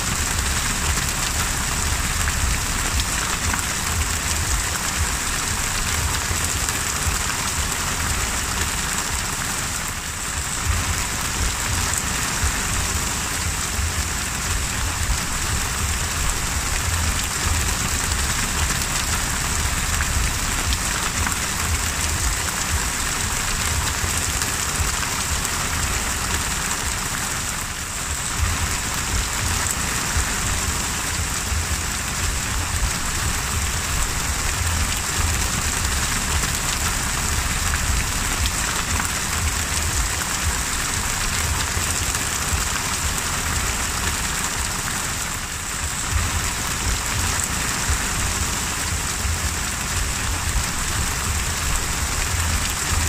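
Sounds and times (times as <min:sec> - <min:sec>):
low rumble: 0:00.0 - 0:44.9, 0:45.5 - 0:53.0
heavy rain on sea: 0:00.0 - 0:53.0.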